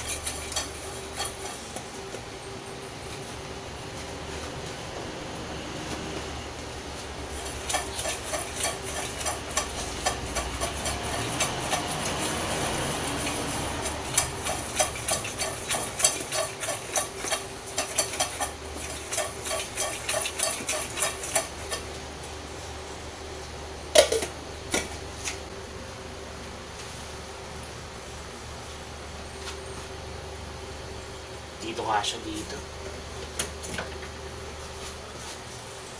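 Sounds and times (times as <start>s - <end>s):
popcorn popping in a saucepan: 0.0s - 2.3s, 7.4s - 21.9s.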